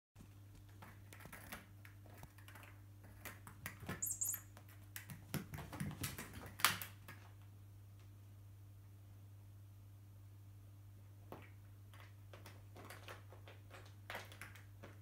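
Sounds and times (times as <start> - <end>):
short high squeaks: 4.0 - 4.5.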